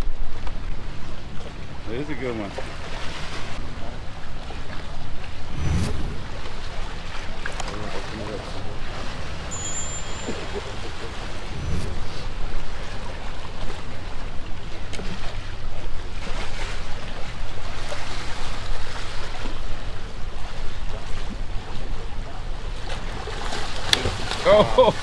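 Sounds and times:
waves washing against pier pilings: 0.1 - 11.5, 12.6 - 25.0
wind rumbling on microphone: 2.6 - 22.2.

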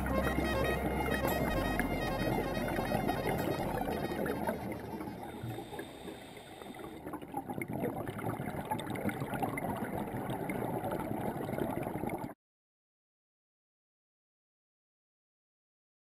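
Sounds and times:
muffled underwater crackly hiss: 1.6 - 7.2.

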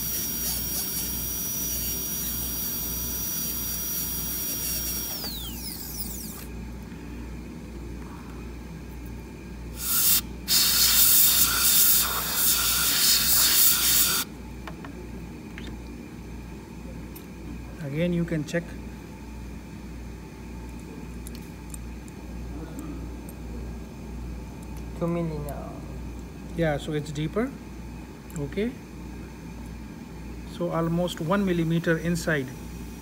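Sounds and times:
air hissing: 0.0 - 6.5, 9.7 - 14.3
dental drill whining: 0.0 - 6.5, 9.7 - 14.3.

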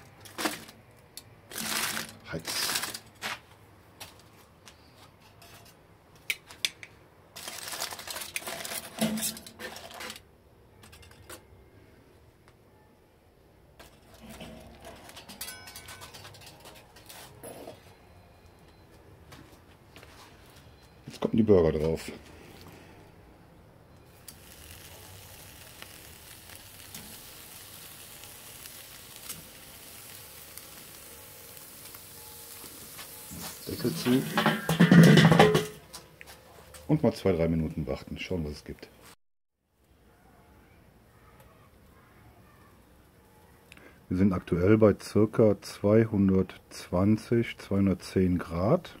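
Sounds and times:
aluminium foil crackling: 0.0 - 3.5, 7.3 - 10.3, 13.8 - 17.6, 24.0 - 36.0
burger patties sizzling on grill: 1.5 - 3.0, 24.1 - 35.6.

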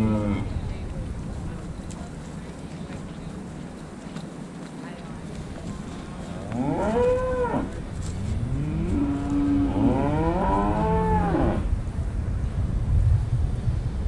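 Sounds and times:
cattle mooing: 0.0 - 0.5, 6.6 - 7.7, 8.5 - 11.7.

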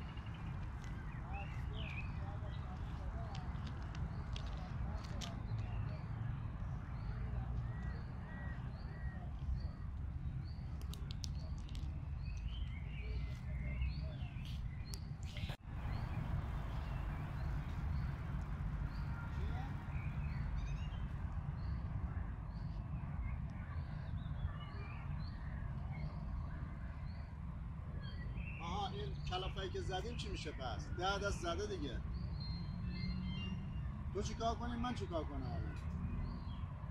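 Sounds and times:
small birds chirping: 0.0 - 36.9
steady low rumble: 7.7 - 24.6.

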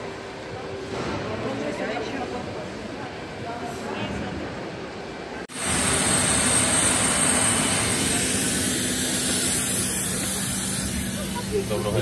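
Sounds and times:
jet engine rush and whine: 5.5 - 12.0.

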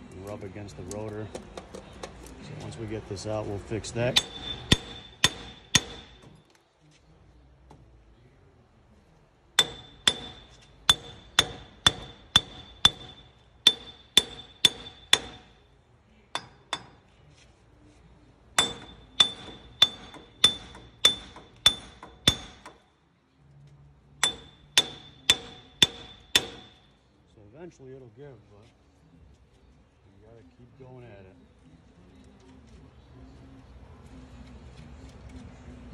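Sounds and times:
hammer clanging on metal: 4.1 - 6.4, 9.6 - 15.6, 16.4 - 17.0, 18.6 - 22.8, 24.2 - 26.9.

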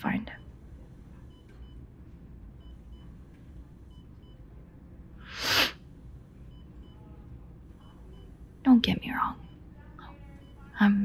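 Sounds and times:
patient monitor double beeps: 0.0 - 4.5, 6.4 - 11.0
low steady hum: 0.0 - 11.0.

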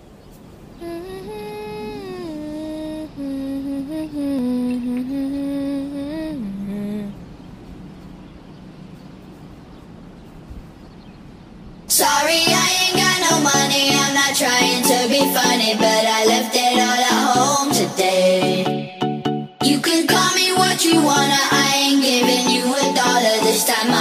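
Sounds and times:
person humming a slow melody: 0.8 - 7.2.

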